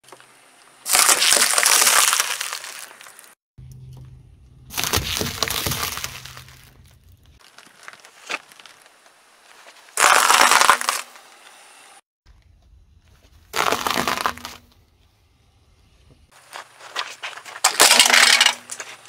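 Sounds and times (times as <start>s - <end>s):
tyre crunching clay pebbles: 0.1s - 3.4s, 4.7s - 11.2s, 13.0s - 14.7s, 16.3s - 19.0s
tyre crunching onions: 0.8s - 3.4s, 4.6s - 11.3s, 13.3s - 14.7s
low engine hum: 3.6s - 7.4s.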